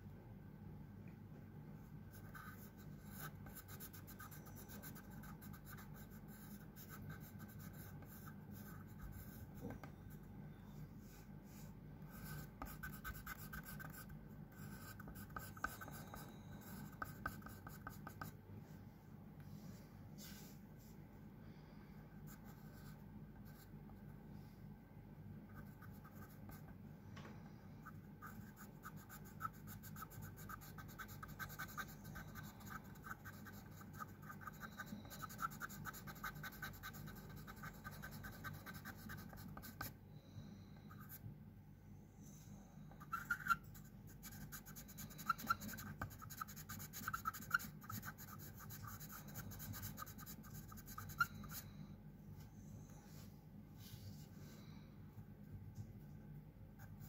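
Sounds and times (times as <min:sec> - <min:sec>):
steady low hum: 0:00.0 - 0:57.0
pen scratching on paper: 0:12.1 - 0:18.3, 0:28.2 - 0:39.9, 0:43.0 - 0:51.6.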